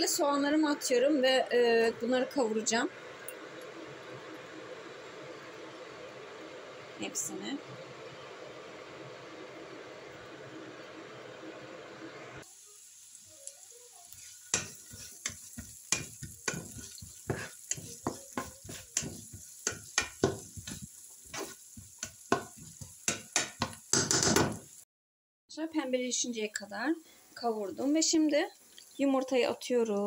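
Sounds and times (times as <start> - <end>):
onions sizzling in oil: 0.0 - 24.8, 25.8 - 30.0
spatula scraping and tapping pan: 14.1 - 24.6.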